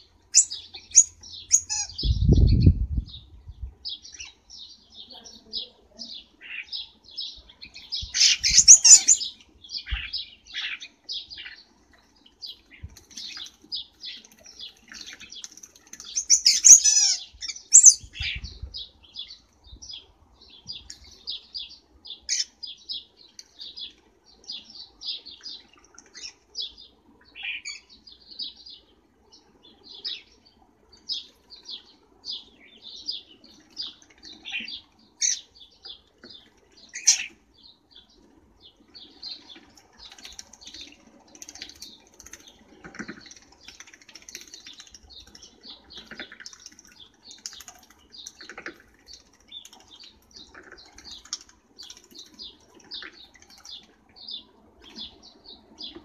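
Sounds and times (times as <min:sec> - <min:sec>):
birds chirping: 0:00.0 - 0:56.0
chattering bird calls: 0:39.0 - 0:56.0.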